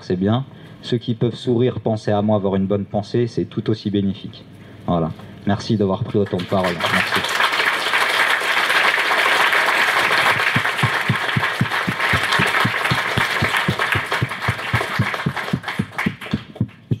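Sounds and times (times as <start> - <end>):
audience applauding: 6.2 - 17.0
close steady hand claps: 6.2 - 17.0.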